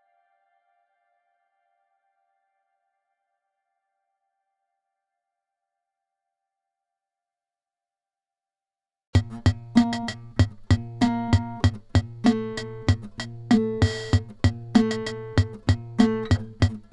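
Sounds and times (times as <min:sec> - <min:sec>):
drum-machine beat: 0:09.2 - 0:16.9
repeated pitched notes: 0:09.2 - 0:16.9
steady bass line: 0:09.2 - 0:16.9.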